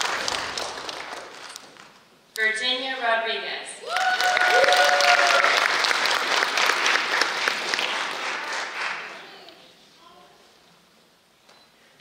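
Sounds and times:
audience clapping: 0.0 - 2.0, 3.9 - 9.6
whoop of cheering: 3.8 - 5.6.

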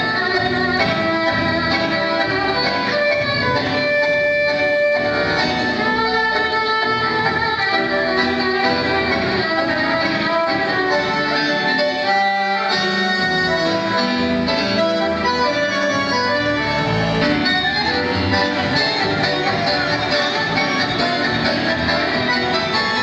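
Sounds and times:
bandoneon notes: 0.0 - 23.0
tango ensemble music: 0.0 - 23.0.

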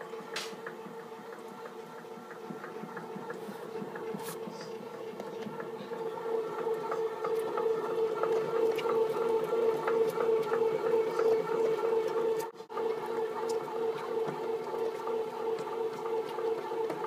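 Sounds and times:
bread maker motor humming: 0.0 - 17.0.

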